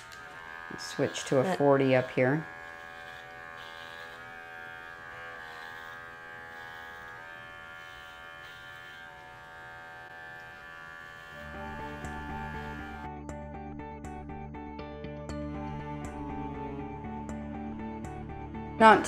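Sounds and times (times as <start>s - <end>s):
electric clippers buzzing: 0.0s - 14.4s, 15.3s - 19.0s
background music: 10.9s - 19.0s.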